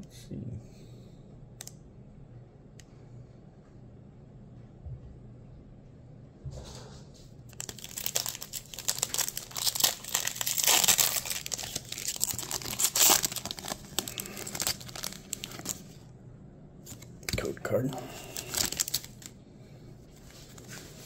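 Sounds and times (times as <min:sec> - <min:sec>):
foil wrapper crinkling and tearing: 0:07.5 - 0:16.0, 0:18.1 - 0:19.4.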